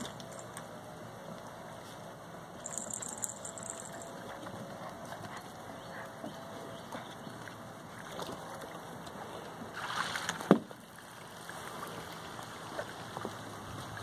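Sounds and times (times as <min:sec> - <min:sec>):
water sloshing and splashing: 0:06.9 - 0:14.0.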